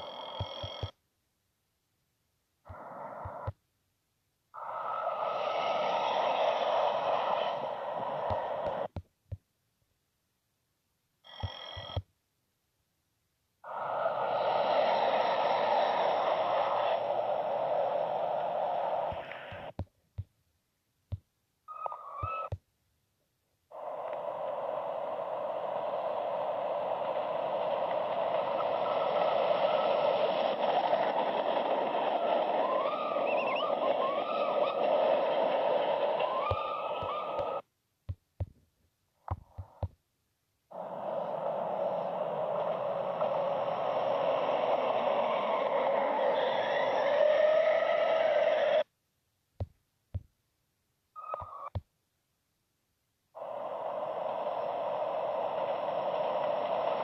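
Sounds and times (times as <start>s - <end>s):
clicks: 0.0s - 1.0s, 11.3s - 12.1s
train rushing past: 4.8s - 8.9s, 13.7s - 19.2s, 25.0s - 37.6s, 40.8s - 48.8s.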